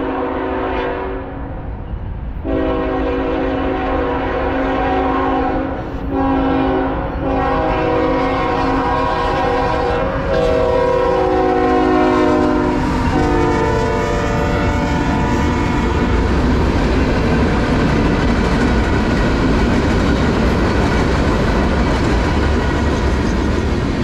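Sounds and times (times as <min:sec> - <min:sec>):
locomotive air horn blasts: 0:00.0 - 0:01.4, 0:02.4 - 0:16.2
passing train rumble: 0:00.0 - 0:24.0.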